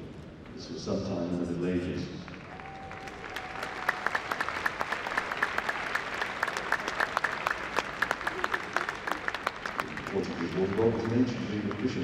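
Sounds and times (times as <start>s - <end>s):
crowd applauding: 2.2s - 12.0s.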